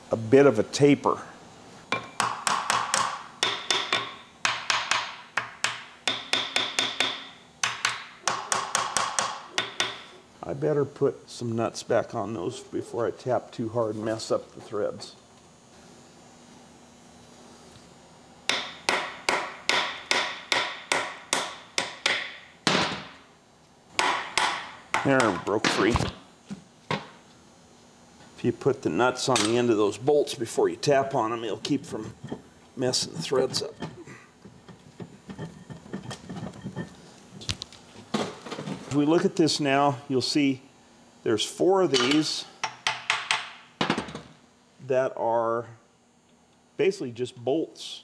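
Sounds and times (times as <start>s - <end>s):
hammer striking metal nuts: 1.9s - 10.1s, 18.5s - 23.1s, 24.0s - 25.8s.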